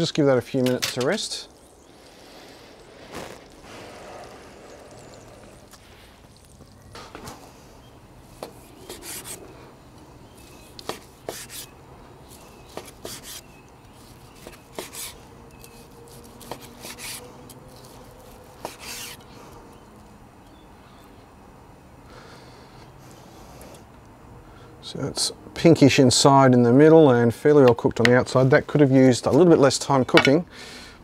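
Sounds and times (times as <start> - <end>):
knife rasping through meat: 8.4 - 9.4, 12.7 - 13.5, 18.6 - 19.2.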